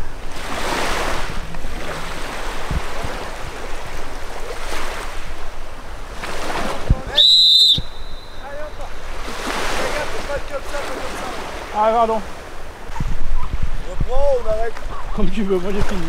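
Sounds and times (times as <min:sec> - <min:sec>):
small waves washing on a beach: 0:00.0 - 0:07.2, 0:07.8 - 0:16.0
wind gusting over microphone: 0:00.0 - 0:16.0
shrill whistle blast: 0:07.1 - 0:08.8.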